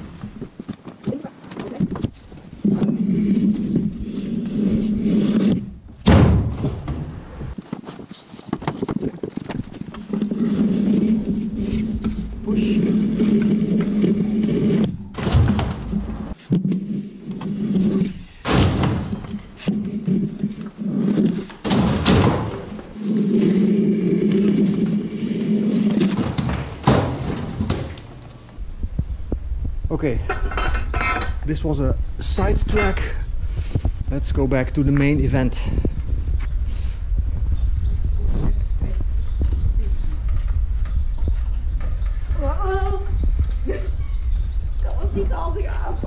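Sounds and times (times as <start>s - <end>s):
wooden board scraping on beam: 2.2s - 5.8s, 6.6s - 28.6s
sharp wooden knocks: 26.0s - 28.6s.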